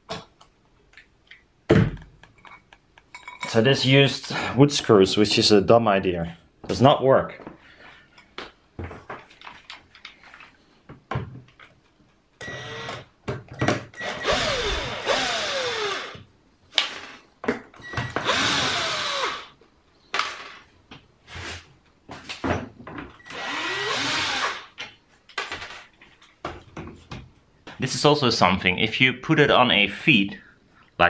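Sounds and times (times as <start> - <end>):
cordless drill whining: 12.4 - 13.0, 14.0 - 16.2, 17.9 - 19.5, 23.2 - 24.7.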